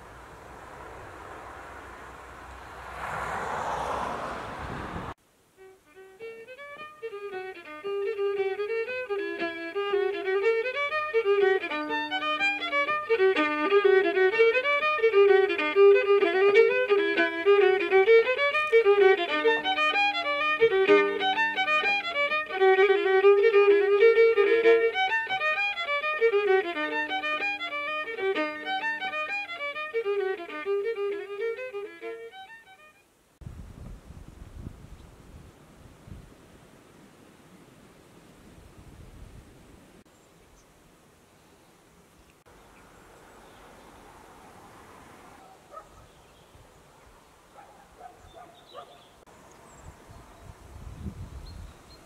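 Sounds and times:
lively fiddle music: 5.6 - 33.1.

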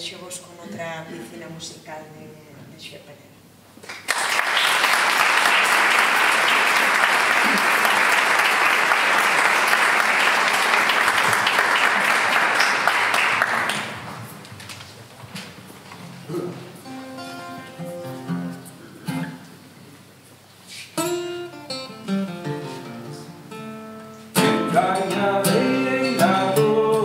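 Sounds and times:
audience applauding: 3.8 - 14.4.

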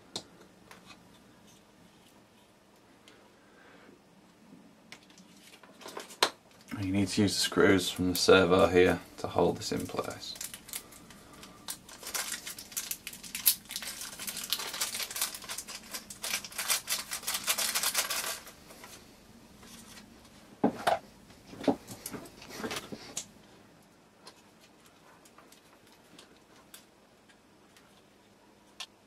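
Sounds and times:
plastic bag crinkling: 9.4 - 19.0.

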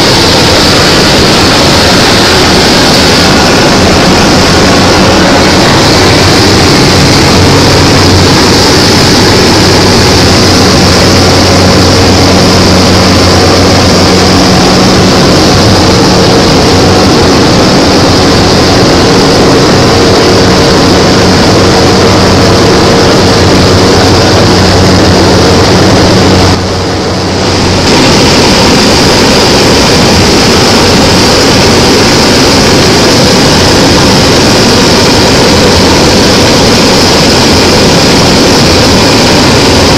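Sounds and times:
propeller aircraft engine drone: 0.0 - 39.9.

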